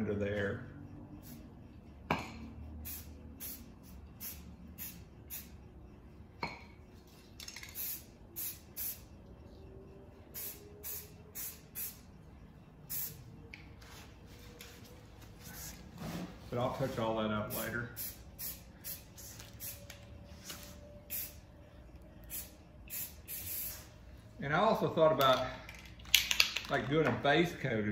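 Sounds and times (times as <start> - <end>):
spray paint hissing: 1.2 - 1.5, 2.8 - 5.6, 7.4 - 9.1, 10.3 - 12.1, 12.9 - 13.3, 15.4 - 15.9, 17.5 - 21.4, 22.2 - 24.0.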